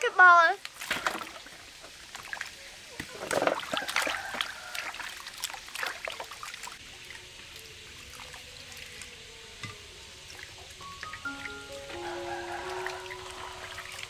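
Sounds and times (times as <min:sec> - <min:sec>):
hands splashing water in basin: 0:03.0 - 0:06.8.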